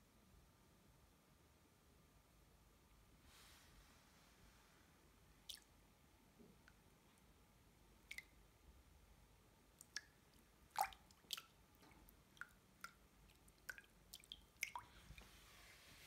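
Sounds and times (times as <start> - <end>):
water drips: 5.4 - 5.8, 8.0 - 8.6, 9.7 - 15.4.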